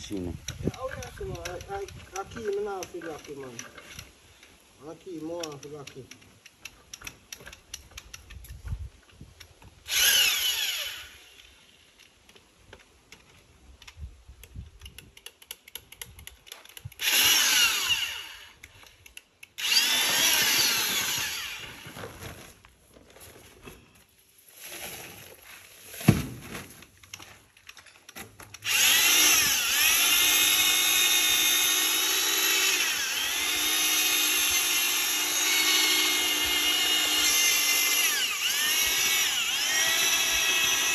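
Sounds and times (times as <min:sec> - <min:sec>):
drill paddle mixer whining: 0:09.9 - 0:11.4, 0:17.0 - 0:18.6, 0:19.6 - 0:21.8, 0:28.6 - 0:40.9.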